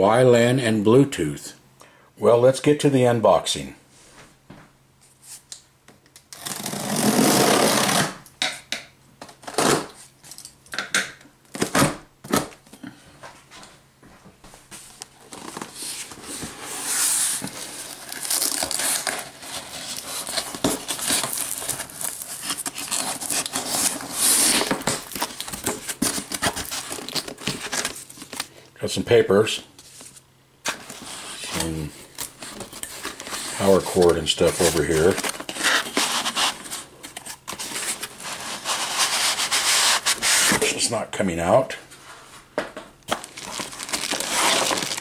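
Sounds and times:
cardboard rustling and scraping: 14.6s - 28.5s, 29.8s - 40.8s, 43.1s - 45.0s.

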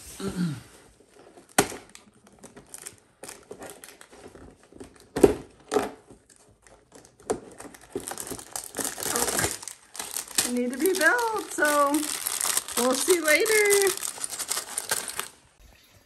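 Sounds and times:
cardboard tearing and cracking: 7.0s - 15.4s.

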